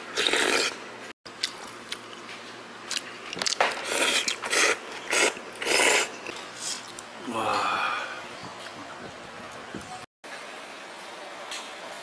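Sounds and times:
person slurping noodles: 0.1 - 0.8, 3.8 - 8.1.

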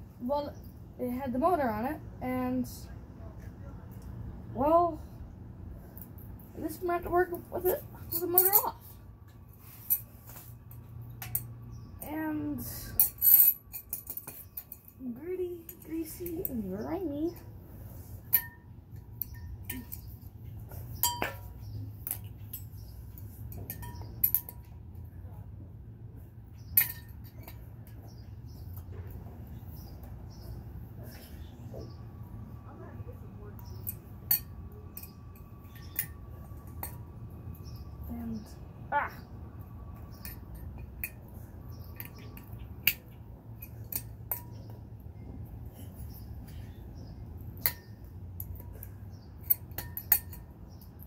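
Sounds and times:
metal tools clinking on engine: 7.6 - 8.8, 12.8 - 15.0, 20.9 - 24.9, 47.6 - 51.0.

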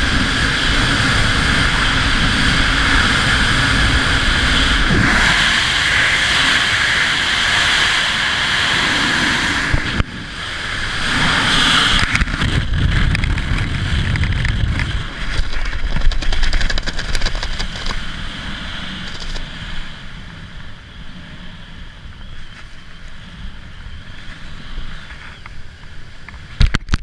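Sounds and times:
freefall wind rushing: 0.0 - 22.2
low buffeting wind: 0.0 - 27.0
parachute fabric flapping: 11.7 - 18.2.

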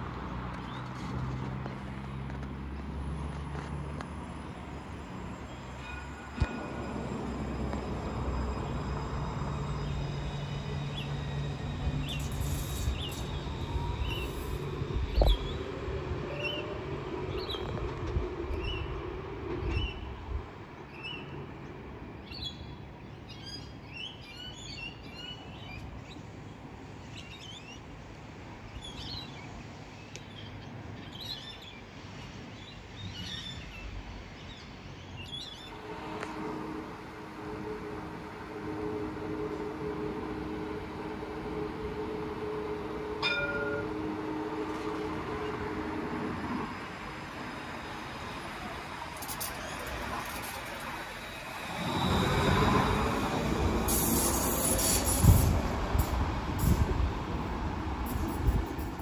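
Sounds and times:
tram rumbling: 0.0 - 29.9, 30.6 - 59.0.

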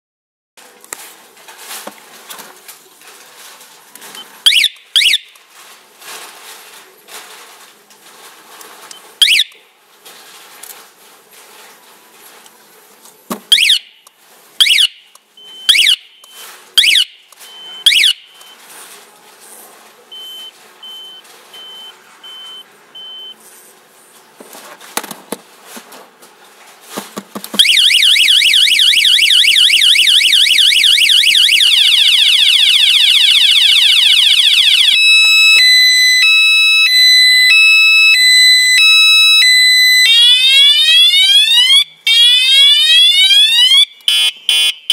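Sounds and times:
alarm siren chirps: 4.4 - 5.3, 9.2 - 9.6, 13.5 - 13.9, 14.6 - 18.6, 27.6 - 44.9
loud fast warbling siren: 4.5 - 5.2, 15.7 - 16.1, 16.8 - 17.2, 17.9 - 18.2, 27.6 - 44.9
short even beeps: 20.2 - 23.4.

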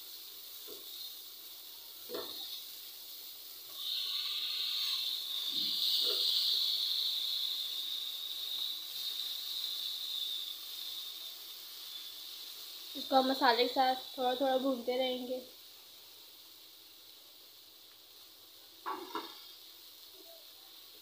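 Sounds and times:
lentils sizzling in oil: 0.0 - 21.0
spatula knocking pan: 18.8 - 19.4.

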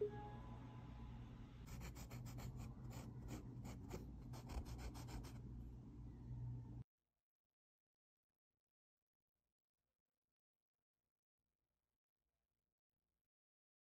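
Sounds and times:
low steady hum: 0.0 - 6.8
pencil scratching: 1.7 - 5.4.

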